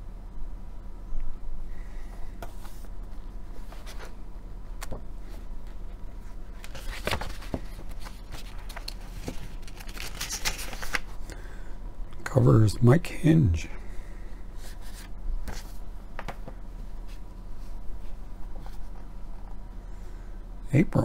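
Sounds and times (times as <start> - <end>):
steady low hum: 0.0 - 21.0
magazine pages rustling: 6.5 - 11.2.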